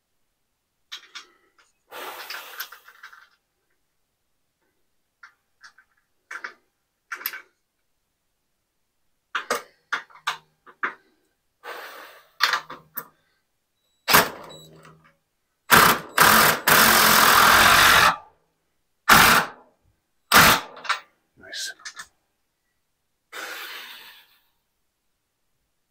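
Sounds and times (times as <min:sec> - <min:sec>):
knocks and clicks of handling: 0:05.2 - 0:07.6
cordless drill driving a fastener: 0:15.7 - 0:18.2.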